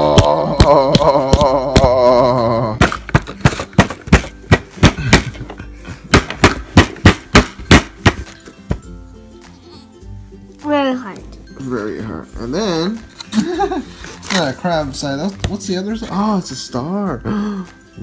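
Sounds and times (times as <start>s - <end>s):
plastic mold thunking on dough: 2.8s - 8.9s.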